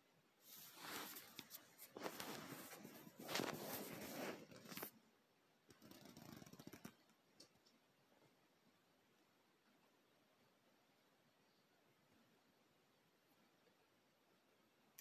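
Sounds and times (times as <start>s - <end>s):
phone handling rustle on fabric: 0.5s - 4.9s
small clicks: 5.7s - 7.8s.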